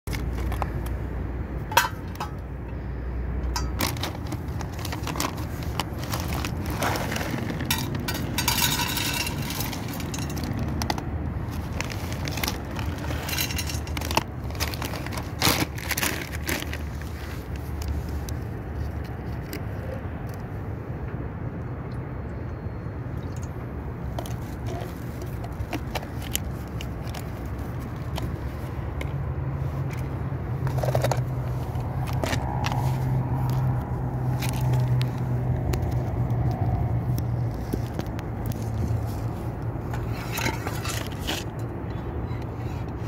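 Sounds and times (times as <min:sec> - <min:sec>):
clicks scrapes and rustles: 0:00.1 - 0:01.0, 0:03.4 - 0:20.5, 0:24.1 - 0:43.0
kibble rattling into metal plate: 0:03.5 - 0:11.0, 0:11.6 - 0:16.7.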